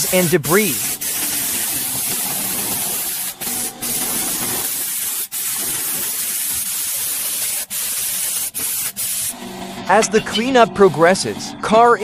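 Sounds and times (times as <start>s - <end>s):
compressed air blow gun hissing: 0.0s - 9.3s.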